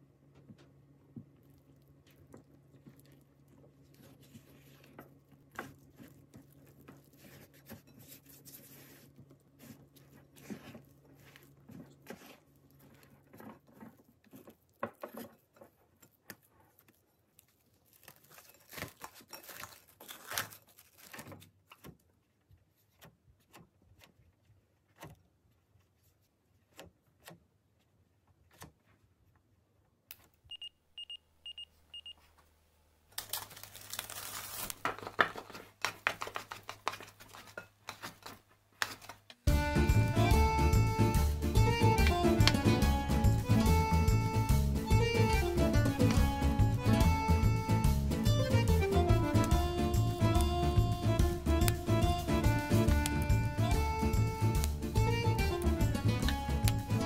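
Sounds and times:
spatula stirring sticky dough: 1.3 - 17.6.

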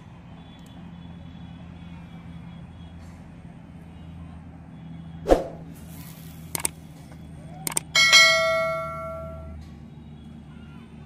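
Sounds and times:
whoosh: 5.3 - 5.7
bell chime: 8.0 - 9.6.

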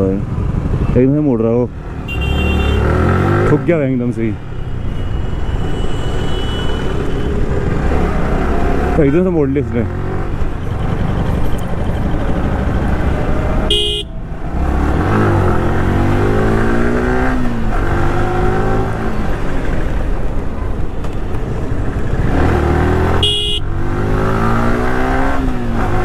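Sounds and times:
wind and road noise: 0.0 - 26.0
motorcycle engine accelerating: 22.0 - 26.0.

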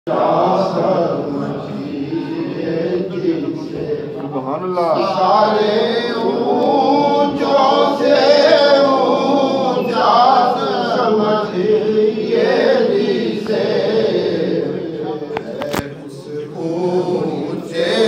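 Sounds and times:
men chanting in unison: 0.1 - 18.0.

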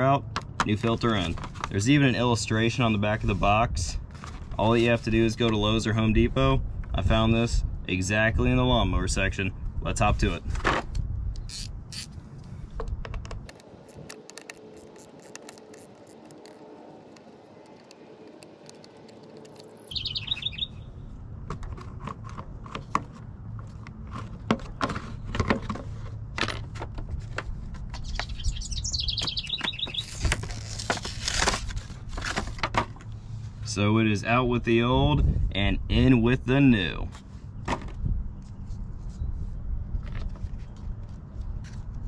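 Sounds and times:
birds chirping: 14.2 - 21.1, 27.9 - 30.3.

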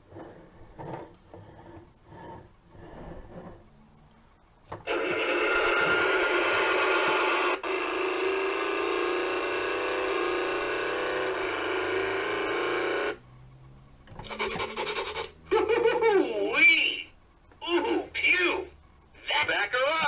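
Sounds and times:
electronic toy sound effects: 14.2 - 15.3.

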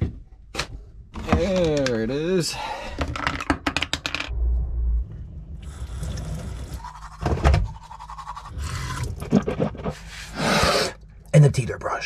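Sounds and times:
toothbrush scrubbing teeth: 6.8 - 10.0.

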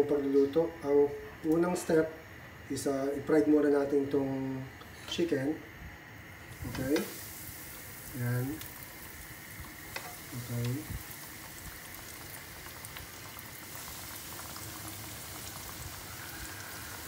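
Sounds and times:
chicken deep-frying in oil: 6.4 - 17.0
oil crackling and popping: 6.5 - 17.0.

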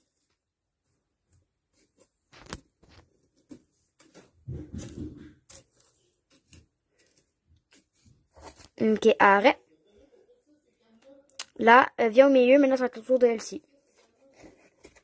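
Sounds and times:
rustling: 0.0 - 8.8.

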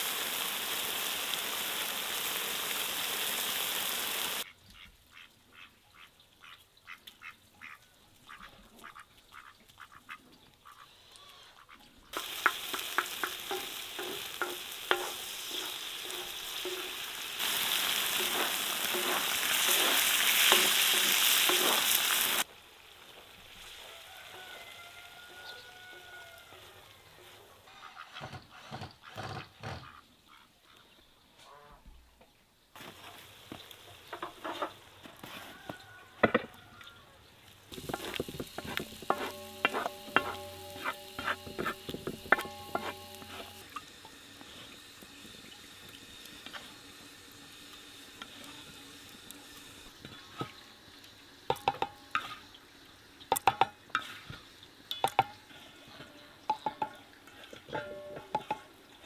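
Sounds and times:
food sizzling on griddle: 0.0 - 4.5, 12.1 - 27.2, 32.8 - 36.7, 37.5 - 56.7
spatula scraping metal: 13.5 - 21.9, 37.8 - 43.6.

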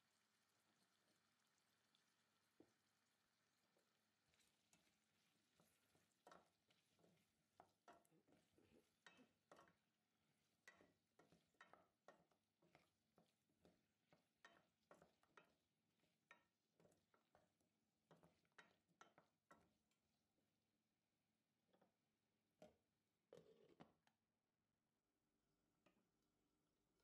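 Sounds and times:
wooden spoon stirring in a pot: 1.7 - 20.4, 21.7 - 22.0, 22.6 - 24.1.

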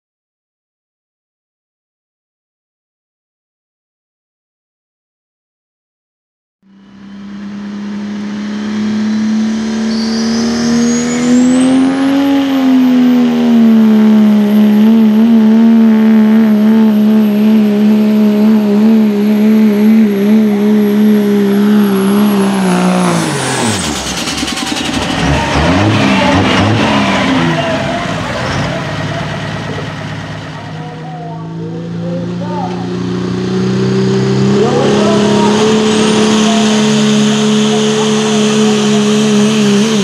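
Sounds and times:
diesel engine droning under load: 6.6 - 40.0
high turbo whistle: 6.8 - 12.8.

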